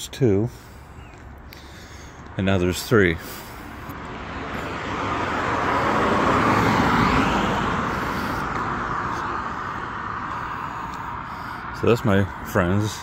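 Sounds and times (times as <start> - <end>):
car driving past: 3.8 - 11.8.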